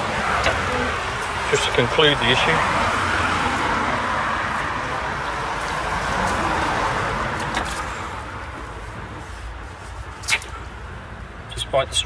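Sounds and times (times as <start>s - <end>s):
passing car road noise: 0.0s - 11.6s.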